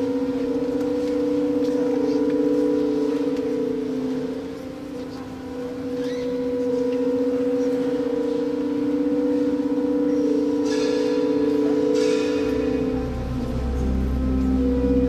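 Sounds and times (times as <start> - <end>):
higher ringing notes: 0.0 - 15.0
low wavering held tones: 7.2 - 15.0.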